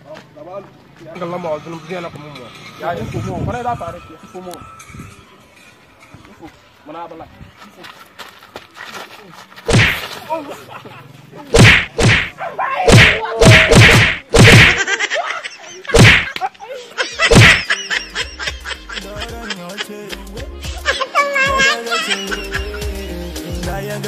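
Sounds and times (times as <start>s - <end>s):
music: 1.2s - 9.1s, 17.4s - 24.0s
loud whacking blows: 9.7s - 10.0s, 11.5s - 14.9s, 15.9s - 16.4s, 17.3s - 17.7s.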